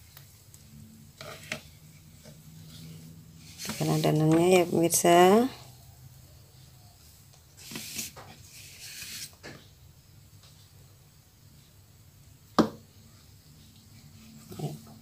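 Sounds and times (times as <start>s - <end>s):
soft scraping and rustling: 1.1s - 5.6s, 7.0s - 9.7s, 13.6s - 15.0s.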